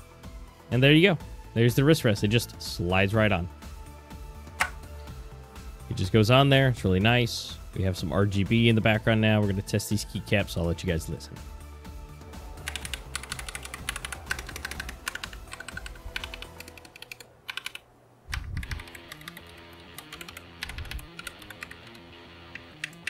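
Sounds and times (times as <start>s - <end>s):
background music: 0.0s - 17.9s, 18.5s - 23.0s
mechanical keyboard typing: 12.6s - 23.0s.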